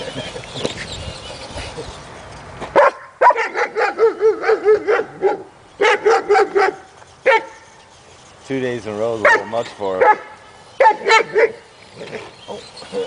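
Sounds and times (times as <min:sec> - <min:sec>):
dog barking: 0:02.8 - 0:07.5, 0:09.2 - 0:11.6.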